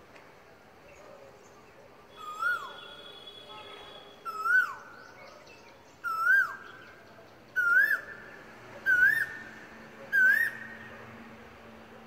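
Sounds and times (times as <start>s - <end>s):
bird whistled call: 2.1s - 4.9s, 6.0s - 6.7s, 7.6s - 8.1s, 8.9s - 9.4s, 10.2s - 10.7s.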